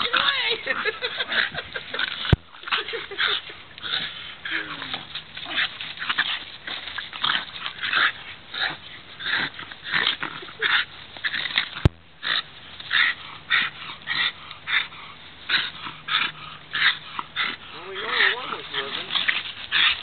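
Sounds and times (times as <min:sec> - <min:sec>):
dog breathing hard: 0:12.2 - 0:20.0.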